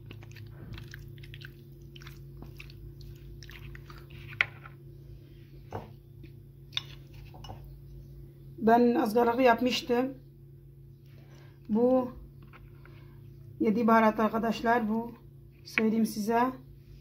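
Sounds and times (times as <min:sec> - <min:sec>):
spoon squelching in wet food: 0:00.0 - 0:04.7.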